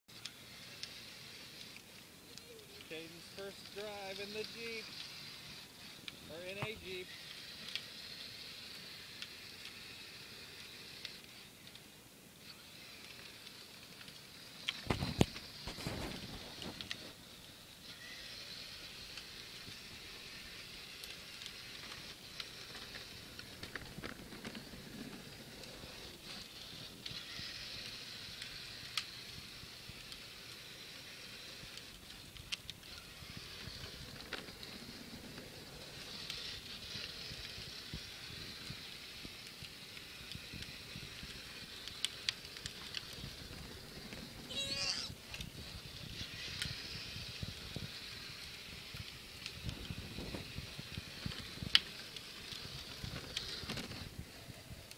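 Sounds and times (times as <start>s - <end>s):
plastic wheels rolling on pavement: 0.1s - 54.9s
small clicks and crackles: 0.1s - 54.9s
toddler squealing: 44.5s - 45.2s.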